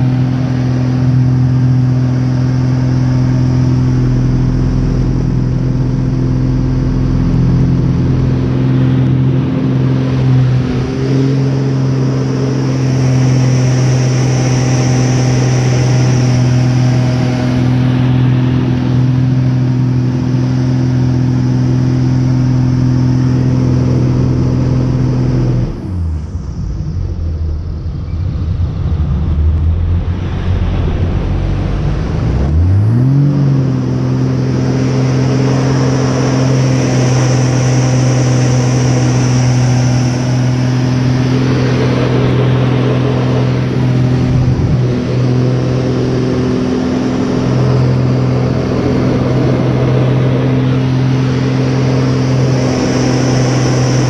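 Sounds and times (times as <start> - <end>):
propeller plane engine droning: 0.0 - 54.0.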